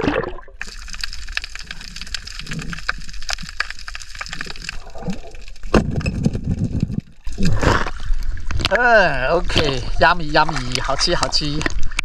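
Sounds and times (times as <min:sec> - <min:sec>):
underwater crackle of clicks: 0:00.0 - 0:08.8
low rumbling water movement: 0:00.0 - 0:12.0.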